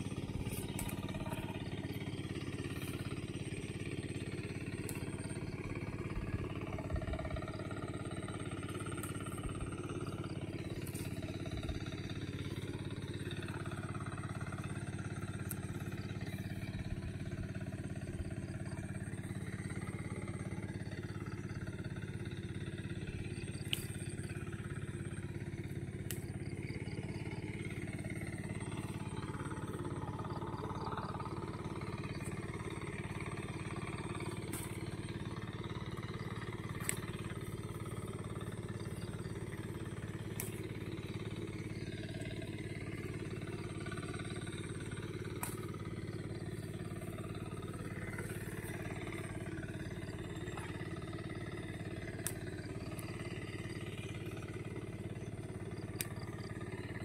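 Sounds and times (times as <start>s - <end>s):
low mechanical drone: 0.0s - 57.0s
faint sharp clicks: 0.5s - 1.9s, 10.6s - 11.3s, 23.2s - 26.8s, 27.5s - 54.8s.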